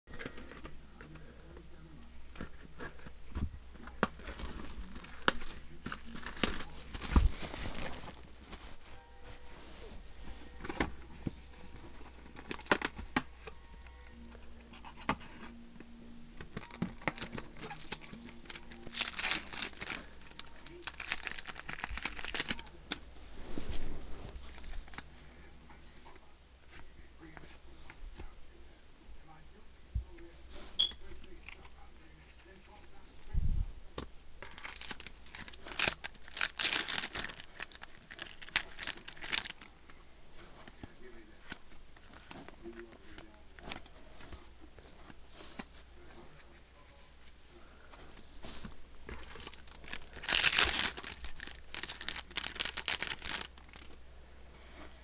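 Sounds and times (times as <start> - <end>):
foil wrappers rustling and crinkling: 3.8 - 13.2, 16.4 - 23.0, 34.4 - 39.7, 48.0 - 54.0
pack tearing open: 16.6 - 22.7, 34.4 - 39.7, 49.2 - 53.9.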